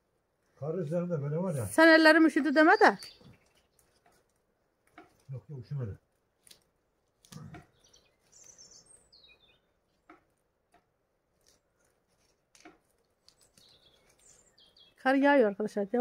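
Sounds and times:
small bird chirping: 1.5s - 4.3s, 7.2s - 10.4s, 11.4s - 16.0s.

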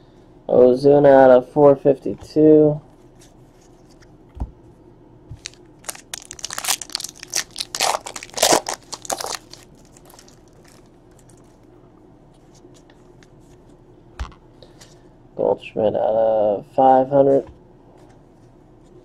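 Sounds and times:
foil wrapper tearing and crinkling: 5.4s - 11.5s.

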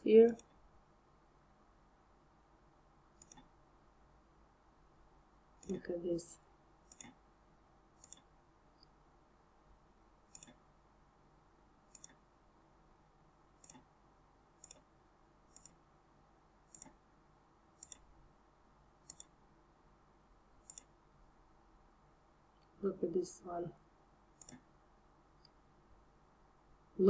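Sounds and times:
mouse button clicking: 3.2s - 3.5s, 8.0s - 8.3s, 11.9s - 12.2s, 15.5s - 15.8s, 19.0s - 19.3s.

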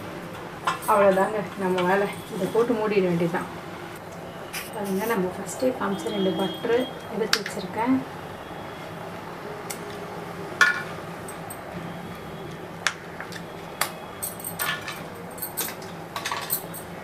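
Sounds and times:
metal kitchenware clinking: 14.2s - 16.9s.

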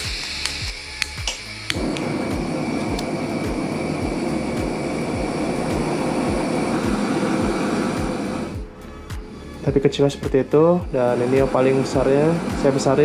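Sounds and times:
piezo igniter clicks: 0.0s - 2.1s, 2.8s - 3.6s
background music with beat: 0.0s - 13.0s
gas burner roaring: 0.0s - 13.0s.

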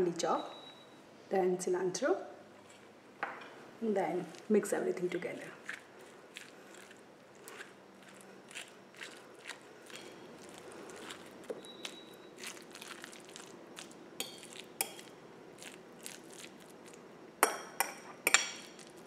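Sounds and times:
spoon mashing in a bowl: 4.2s - 19.0s
spoon clinking against bowl: 14.2s - 15.1s, 17.4s - 18.8s.

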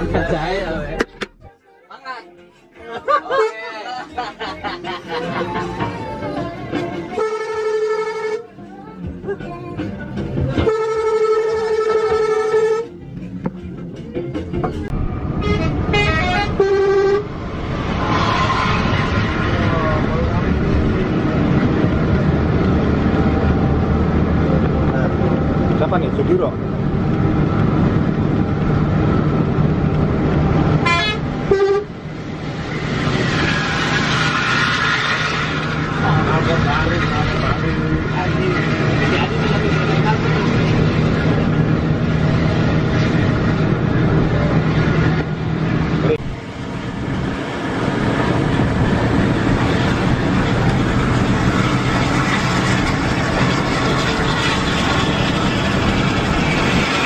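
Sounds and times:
bus engine and road rumble: 0.0s - 57.0s
passing bus: 0.0s - 57.0s
bus horn toots: 7.1s - 8.5s, 10.6s - 13.0s, 15.4s - 17.3s, 30.7s - 32.0s.

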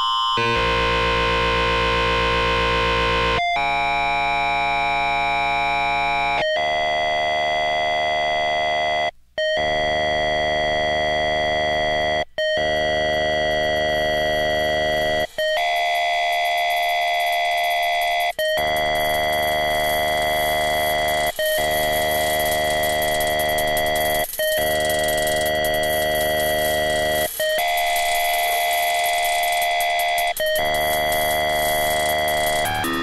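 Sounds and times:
techno-pop synthesizer music: 12.4s - 33.0s.

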